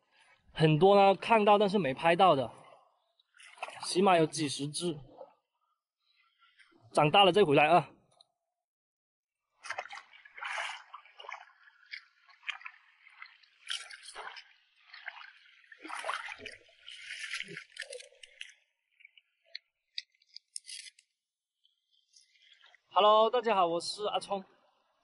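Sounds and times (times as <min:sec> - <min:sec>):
boots wading through shallow water: 0:02.5 - 0:05.3, 0:09.4 - 0:22.9.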